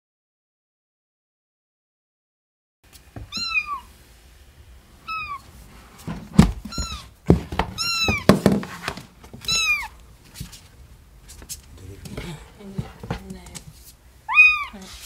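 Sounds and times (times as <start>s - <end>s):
kitten mewing: 3.3s - 3.9s, 5.0s - 5.4s, 6.6s - 7.1s, 7.8s - 8.3s, 9.4s - 10.0s, 14.3s - 15.0s
thumps: 6.0s - 9.6s, 11.3s - 13.8s.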